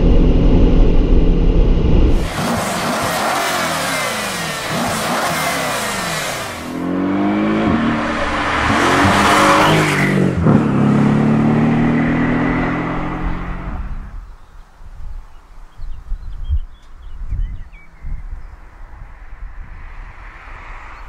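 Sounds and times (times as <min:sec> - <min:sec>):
car engine revving: 0:00.0 - 0:14.1
car accelerating past: 0:02.2 - 0:14.0.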